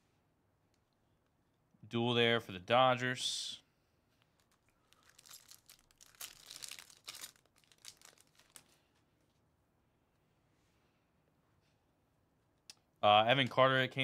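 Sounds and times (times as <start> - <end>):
card pack wrapper tearing and crinkling: 4.3 - 8.8.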